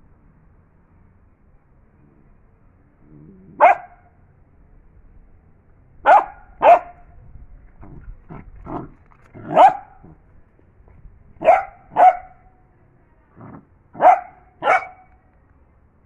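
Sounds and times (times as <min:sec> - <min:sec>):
dog barking: 0:03.6 - 0:04.1, 0:06.0 - 0:07.0, 0:09.4 - 0:10.2, 0:11.4 - 0:12.5, 0:13.4 - 0:15.1.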